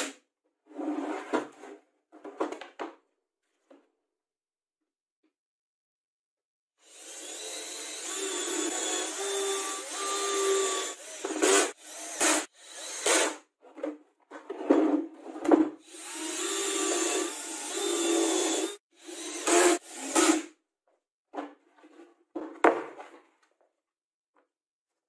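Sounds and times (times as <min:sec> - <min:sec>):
cordless drill whining: 0:06.8 - 0:13.4, 0:15.8 - 0:20.5.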